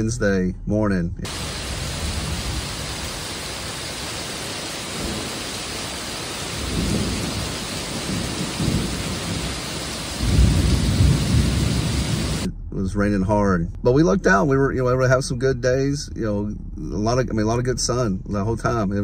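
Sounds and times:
heavy rain pouring: 1.2s - 12.5s
thunder rumbling: 1.2s - 13.0s.

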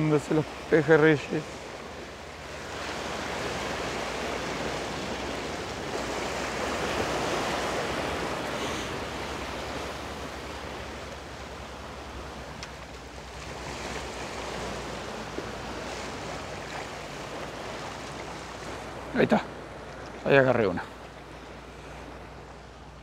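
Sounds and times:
sea surf washing against rocks: 0.0s - 23.0s.

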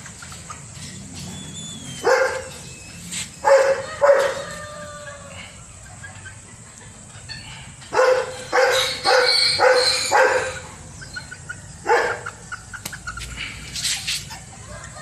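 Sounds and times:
dog barking: 2.0s - 2.5s, 3.4s - 4.4s, 7.9s - 10.6s, 11.8s - 12.4s.

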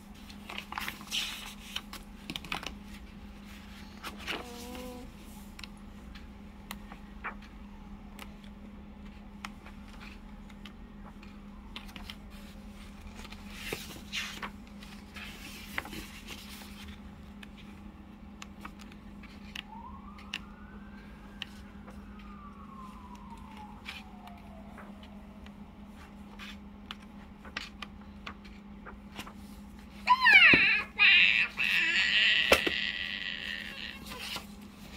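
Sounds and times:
paper pages rustling: 0.2s - 17.8s, 18.4s - 25.2s, 25.9s - 30.0s, 33.7s - 34.9s
low hum: 14.4s - 30.1s.

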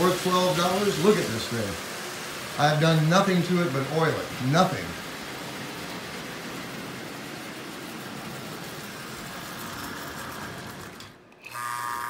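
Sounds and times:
toy train buzzing in reverse: 0.0s - 12.0s
toy train motor whirring: 5.0s - 12.0s.

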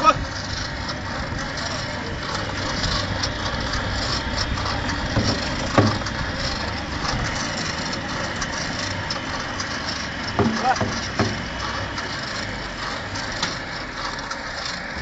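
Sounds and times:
pump and mixer hum and clatter: 0.0s - 15.0s.

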